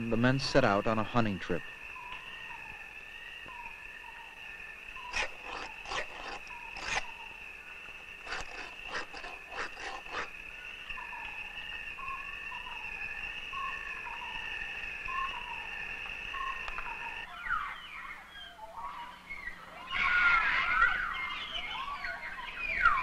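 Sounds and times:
insects droning: 0:00.0 - 0:23.0
blade whetted on a stone: 0:05.1 - 0:07.1, 0:08.2 - 0:10.3.

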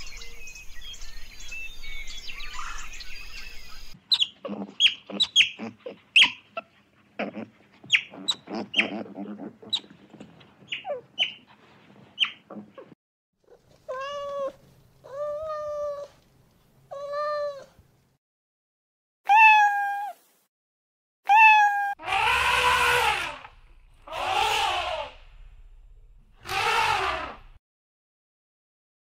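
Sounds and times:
otters squeaking: 0:04.0 - 0:13.0
cats meowing: 0:13.7 - 0:16.2, 0:16.9 - 0:17.7, 0:21.3 - 0:22.0
elephant trumpeting: 0:22.0 - 0:25.5, 0:26.3 - 0:27.6.

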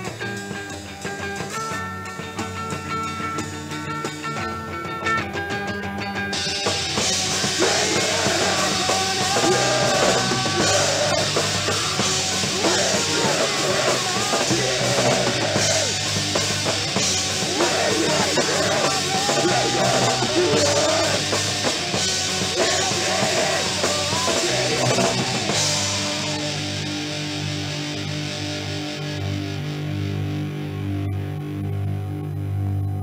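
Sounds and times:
rock music with drum kit: 0:00.0 - 0:31.6.

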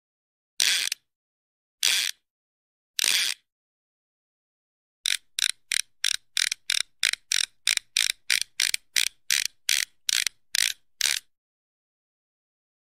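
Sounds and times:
rasping ratchet clicks: 0:00.6 - 0:01.0, 0:01.8 - 0:02.2, 0:03.0 - 0:03.4, 0:05.1 - 0:11.3.

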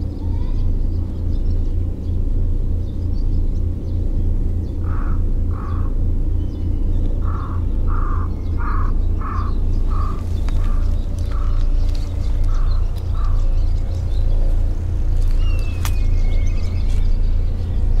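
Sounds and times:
steady low rumble: 0:00.0 - 0:18.0
bird calling short calls: 0:07.2 - 0:14.1.

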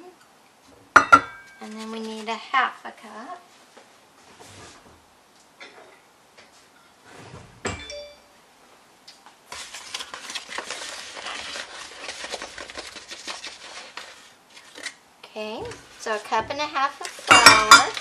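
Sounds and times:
metallic clink ringing: 0:07.7 - 0:08.3
plastic bag crinkling: 0:09.6 - 0:15.0.

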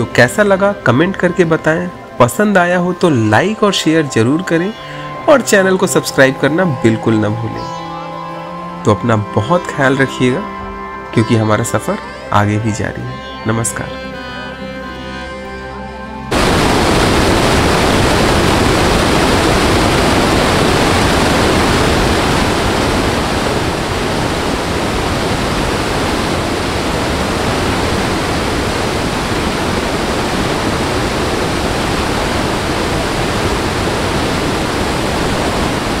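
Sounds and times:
waterfall rushing: 0:16.3 - 0:36.0.

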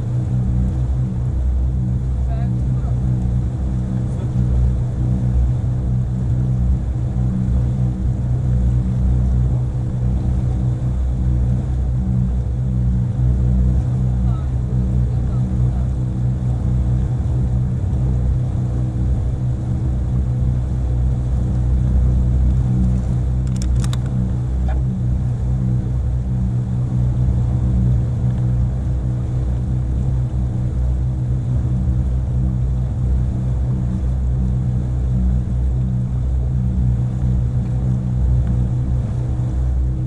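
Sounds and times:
motorboat engine droning: 0:00.0 - 0:40.0
brief clicks: 0:23.4 - 0:24.2.

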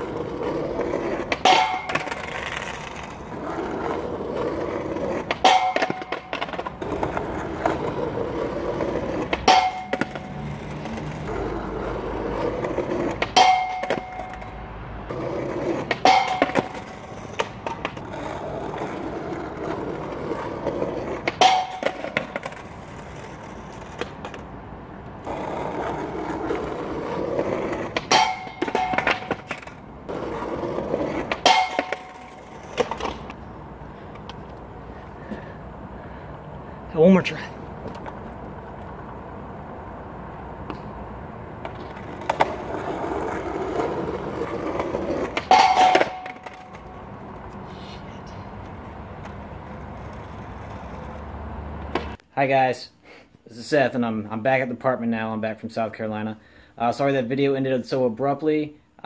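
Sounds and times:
skateboard slapping on pavement: 0:00.0 - 0:24.5, 0:25.2 - 0:33.4, 0:41.6 - 0:47.6, 0:48.5 - 0:52.2
skateboard wheels rolling on asphalt: 0:00.0 - 0:52.4
skateboard clacking on metal bar: 0:00.4 - 0:11.4, 0:12.4 - 0:19.5, 0:21.1 - 0:24.4, 0:26.2 - 0:33.4, 0:41.6 - 0:47.5.

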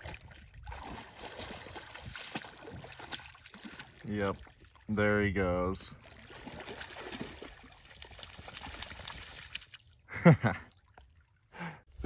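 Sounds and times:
dog splashing in puddle: 0:00.0 - 0:04.6, 0:06.0 - 0:09.9.

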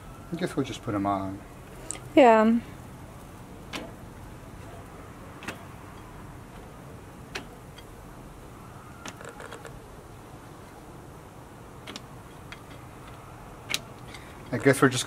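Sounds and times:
low steady background noise: 0:00.0 - 0:15.0
light clicks and taps at grill: 0:03.2 - 0:08.0, 0:11.8 - 0:15.0.

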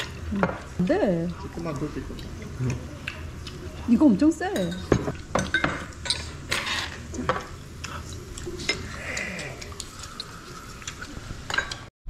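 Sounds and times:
glassware and utensils clinking: 0:04.5 - 0:09.5, 0:11.5 - 0:11.9.

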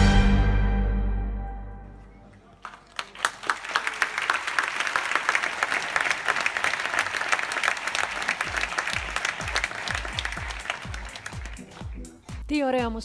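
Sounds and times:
audience applauding: 0:02.4 - 0:12.3.

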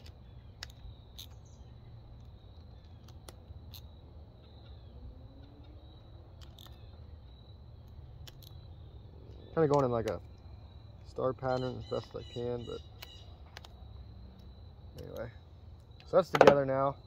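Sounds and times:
high insect trill: 0:00.0 - 0:17.0.

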